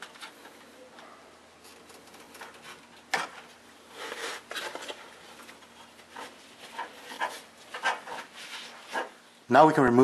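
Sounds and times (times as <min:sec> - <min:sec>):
rubbing and scraping: 0:01.6 - 0:09.2.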